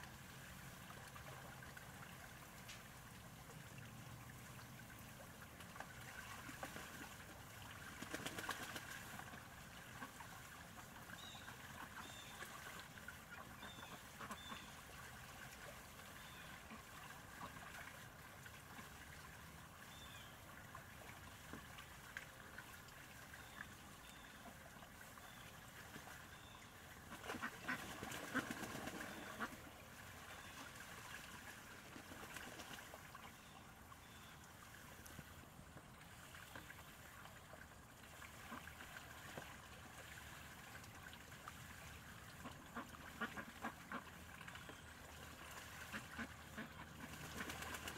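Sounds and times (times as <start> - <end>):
ducks splashing in water: 0.0 - 47.9
soft duck quacks: 13.3 - 14.8, 42.4 - 44.2, 45.7 - 47.6.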